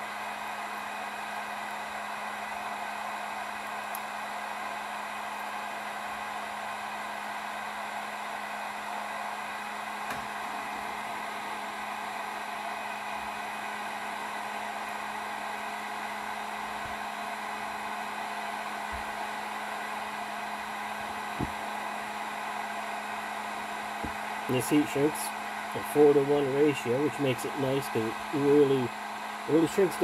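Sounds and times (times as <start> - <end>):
faint taps: 21.4 - 21.6.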